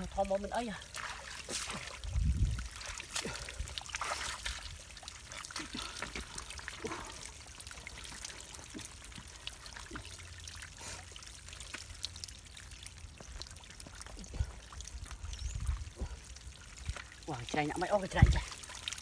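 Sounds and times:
small wet clicks and crackles: 0.0 - 19.0
water trickling over mud: 0.0 - 19.0
dull low thumps: 2.0 - 2.7.

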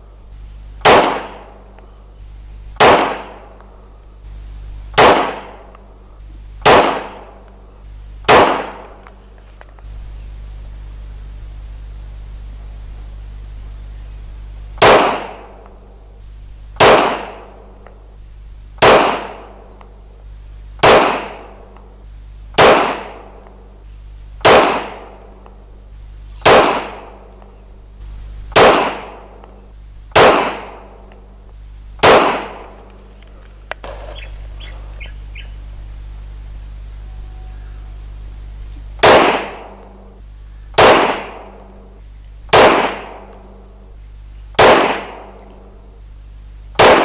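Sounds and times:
pistol shots with echo: 0.8 - 1.6, 2.8 - 3.6, 4.9 - 5.7, 6.6 - 7.4, 8.2 - 9.0, 14.8 - 15.6, 16.8 - 17.7, 18.8 - 19.6, 20.8 - 21.7, 22.5 - 23.4, 24.4 - 25.3, 26.4 - 27.3, 28.5 - 29.4, 30.1 - 31.0, 32.0 - 32.8, 39.0 - 40.1, 40.8 - 41.8, 42.5 - 43.6, 44.6 - 45.7, 46.8 - 47.0
faint click and light ticks: 1.6 - 1.9, 19.7 - 20.0.

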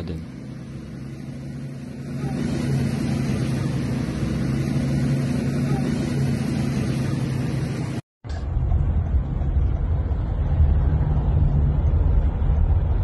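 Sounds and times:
large vehicle engine humming: 0.0 - 13.0.

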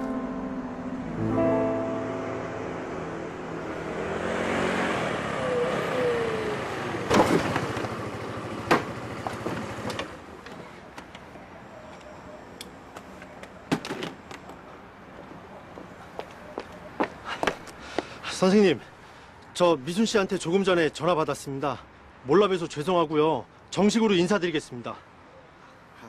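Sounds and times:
car passing by: 1.9 - 8.5.

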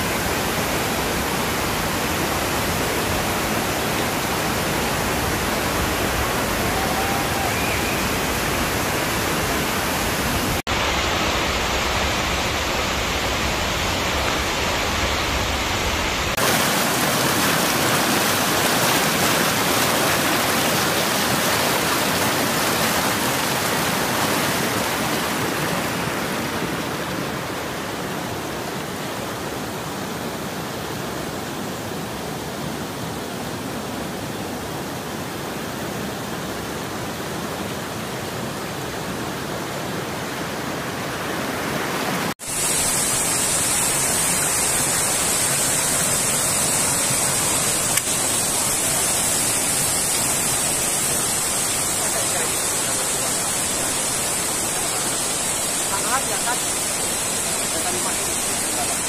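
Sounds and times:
steady high hiss: 0.0 - 29.9, 42.4 - 59.0
river rushing over boulders: 0.0 - 59.0
small rocky stream flowing: 0.0 - 59.0.

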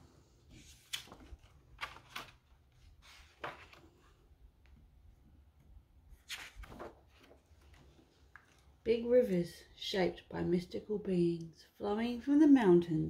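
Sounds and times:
book pages turning: 0.4 - 4.8, 6.2 - 8.8.

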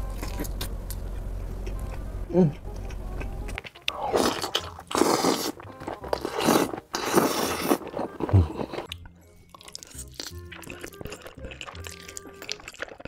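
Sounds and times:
person chewing: 0.0 - 13.0
person slurping noodles: 3.9 - 5.6, 6.2 - 8.9.

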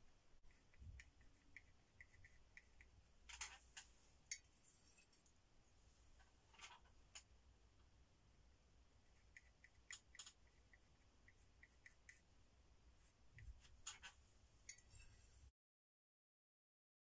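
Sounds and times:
palette knife scraping paint: 0.4 - 3.9.

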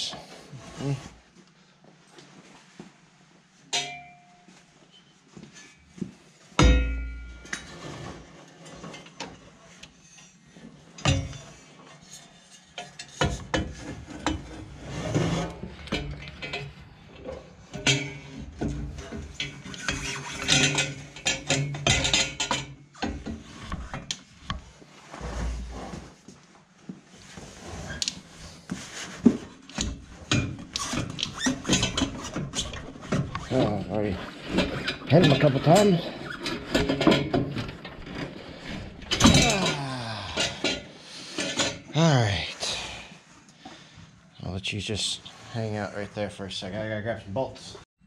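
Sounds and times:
metal tubes clanking and scraping: 3.7 - 4.3, 4.9 - 25.7, 27.5 - 42.9
loud ringing metal clank: 6.6 - 7.6.

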